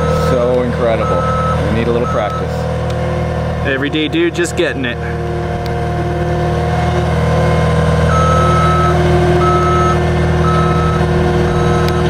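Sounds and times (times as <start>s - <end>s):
reverse alarm beeping: 0.0s - 2.7s, 8.0s - 12.0s
diesel engine running: 0.0s - 12.0s.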